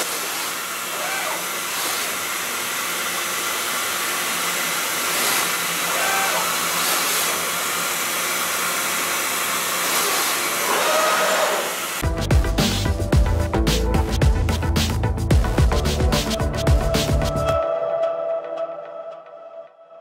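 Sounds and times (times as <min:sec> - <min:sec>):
electronic music with beat: 0:12.0 - 0:19.8.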